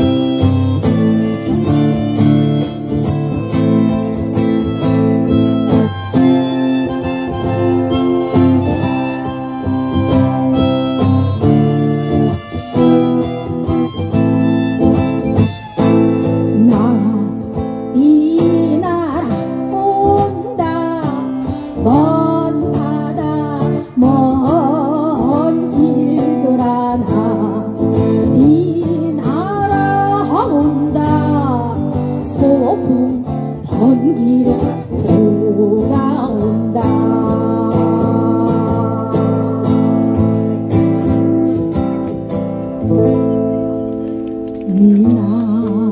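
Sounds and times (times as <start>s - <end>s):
harmonica melody: 0.0s - 17.7s
person singing: 0.0s - 40.5s, 44.6s - 45.9s
acoustic guitar chords: 0.0s - 45.9s.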